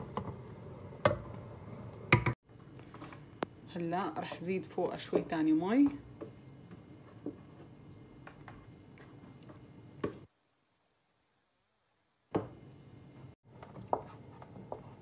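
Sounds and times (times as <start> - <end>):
wooden spoon stirring in pot: 4.0 - 9.7, 13.5 - 15.0.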